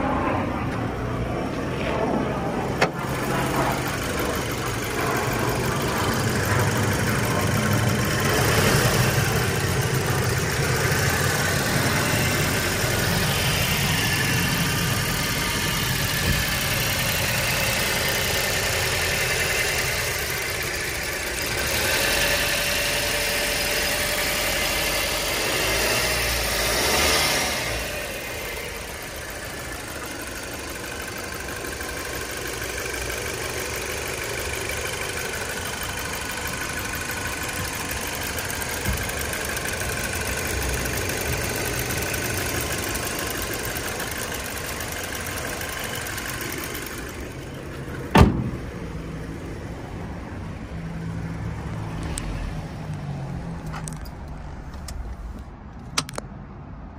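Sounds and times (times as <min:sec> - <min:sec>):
car engine idling: 0:00.0 - 0:56.2
loud thump: 0:48.1 - 0:48.8.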